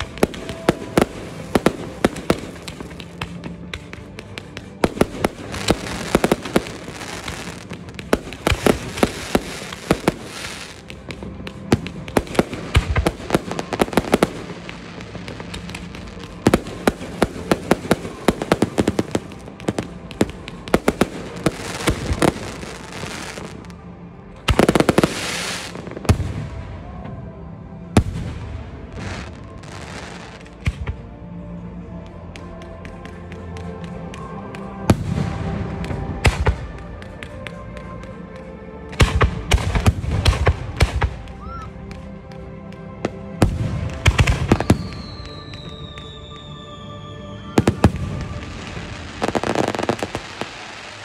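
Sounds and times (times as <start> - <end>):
fireworks bangs and crackles: 0.0 - 31.2, 32.0 - 51.0.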